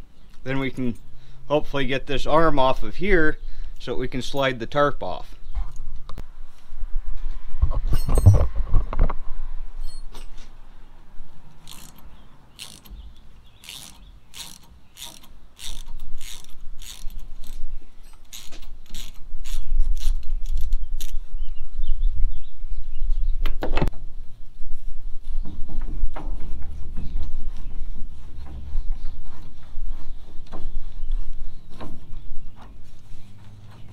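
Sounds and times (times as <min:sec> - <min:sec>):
allen wrench metallic clicks: 0:11.5 - 0:21.2.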